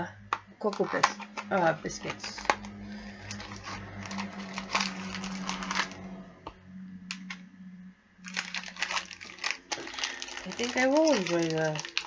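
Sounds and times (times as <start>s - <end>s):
cardboard box crackling: 0.8s - 6.0s, 8.3s - 12.0s.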